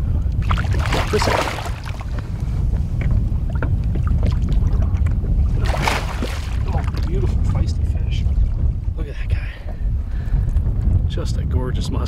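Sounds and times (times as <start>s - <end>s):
steady low rumble: 0.0s - 12.0s
water splashing and sloshing: 0.3s - 8.8s.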